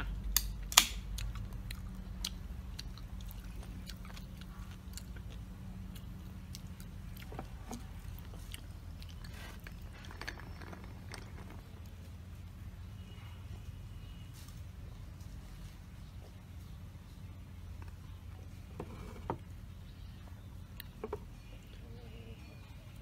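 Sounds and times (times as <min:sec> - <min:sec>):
steady low hum: 0:00.0 - 0:23.0
mouth chewing clicks: 0:00.4 - 0:09.9, 0:20.6 - 0:21.8.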